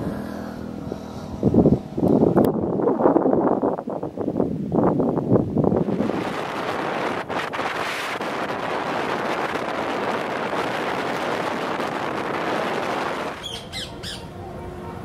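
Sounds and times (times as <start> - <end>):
wind rushing over microphone: 0.0 - 14.5
bird chirps: 13.4 - 14.3.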